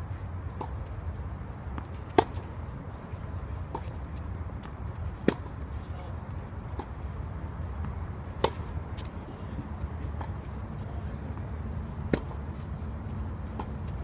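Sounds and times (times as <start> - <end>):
rackets striking tennis ball: 1.8 - 2.6, 3.7 - 6.1, 6.7 - 12.7.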